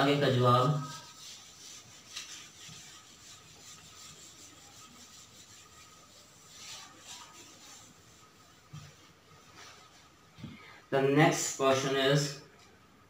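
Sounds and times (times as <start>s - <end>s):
cloth wiping whiteboard: 0.0s - 10.4s.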